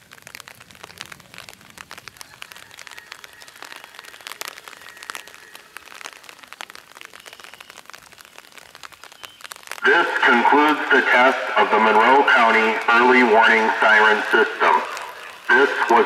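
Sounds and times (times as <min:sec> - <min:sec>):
raindrops tapping on an umbrella: 0:00.0 - 0:16.0.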